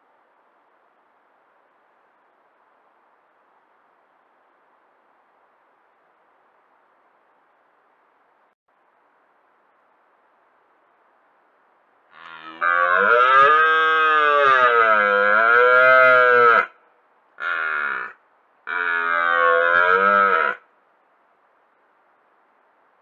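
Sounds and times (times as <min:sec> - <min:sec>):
deer stag roaring: 0:12.2 - 0:16.7, 0:17.4 - 0:20.6.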